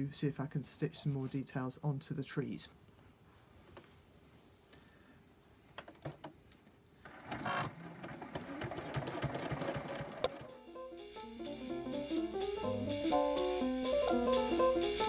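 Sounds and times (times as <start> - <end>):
sewing machine clicks: 7.1 - 10.5
sewing machine rapid rattle: 7.2 - 10.5.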